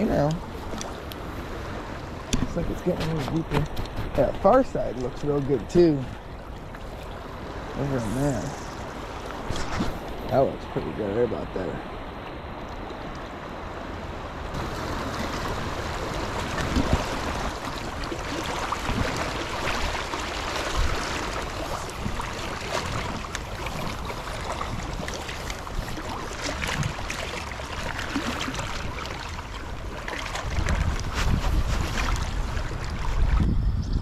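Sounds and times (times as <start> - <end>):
creek water running: 0.0 - 13.4, 14.5 - 33.4
person wading splashing: 14.6 - 33.1.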